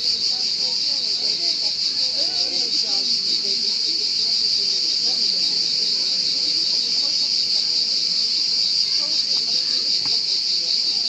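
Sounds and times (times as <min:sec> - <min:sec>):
cicadas buzzing: 0:00.0 - 0:11.0.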